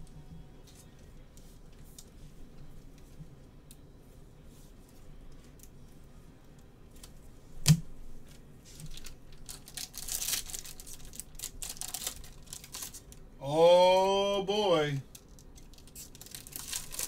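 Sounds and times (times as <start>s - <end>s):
plastic sleeve crinkling: 8.7s - 13.2s, 15.1s - 17.0s.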